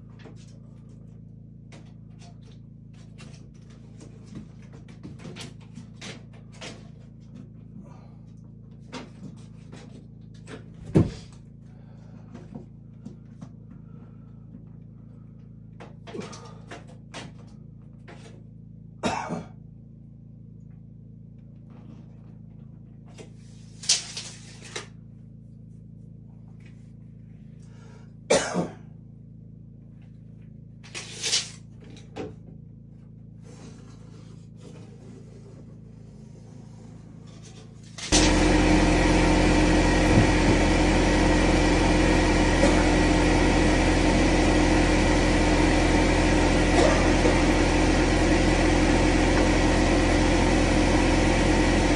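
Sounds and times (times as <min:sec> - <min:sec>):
steady machine hum: 0:37.9 - 0:51.9.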